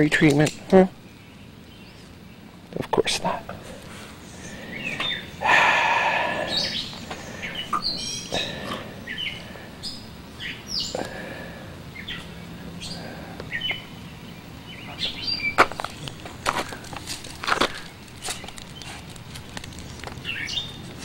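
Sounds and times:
wild birds chirping: 0:00.0 - 0:21.0
sharp clicks: 0:00.1 - 0:00.8.

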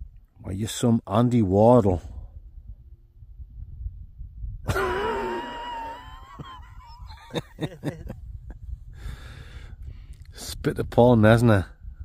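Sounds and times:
man laughing: 0:04.7 - 0:08.6.

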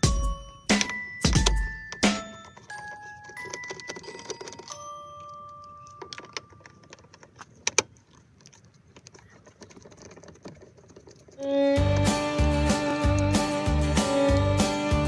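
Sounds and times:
music with a steady beat: 0:00.0 - 0:02.4, 0:11.5 - 0:15.0.

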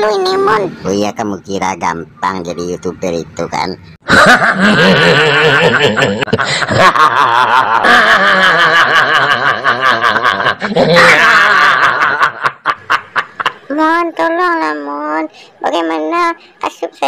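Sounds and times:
man laughing wildly: 0:04.0 - 0:13.7.

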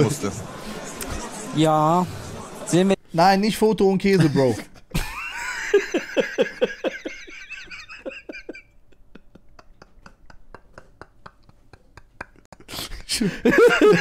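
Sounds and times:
men wheezing laughter: 0:04.9 - 0:14.0.

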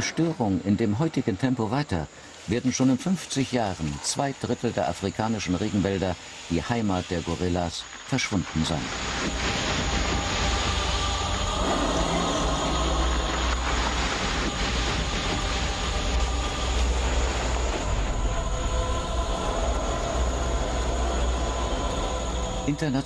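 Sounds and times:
bulldozer diesel engine rumbling: 0:09.0 - 0:23.0.

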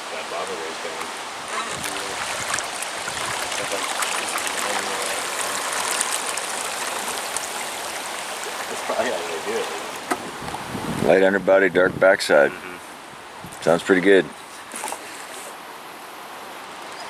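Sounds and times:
river water rushing: 0:00.0 - 0:11.0
small water splashes: 0:01.3 - 0:10.5.

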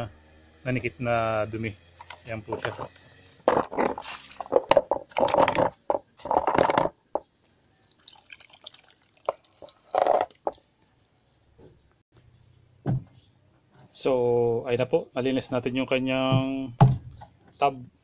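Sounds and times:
water splashing and dripping: 0:07.9 - 0:10.4.

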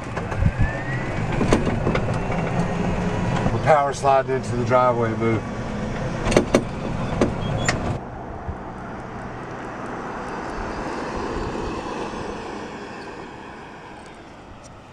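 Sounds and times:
electric cart tyre and wind noise: 0:00.0 - 0:14.9
sharp clicks and knocks: 0:01.2 - 0:02.7, 0:05.9 - 0:08.0.

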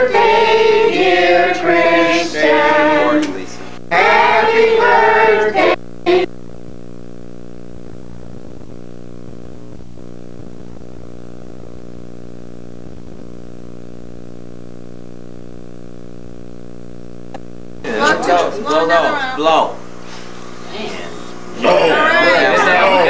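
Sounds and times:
voices singing: 0:00.0 - 0:06.3, 0:17.8 - 0:23.0
steady electrical hum: 0:00.0 - 0:23.0.

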